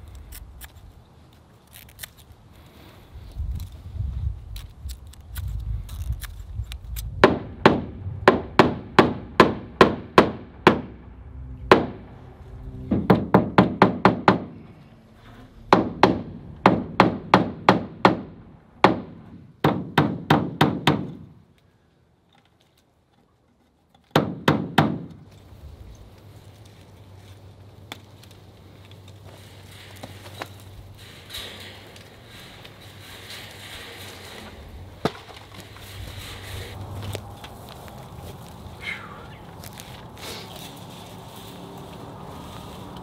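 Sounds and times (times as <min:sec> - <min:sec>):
hammer striking wooden boards: 0:07.2 - 0:11.0, 0:11.7 - 0:12.1, 0:12.9 - 0:14.6, 0:15.7 - 0:21.3, 0:24.1 - 0:25.2.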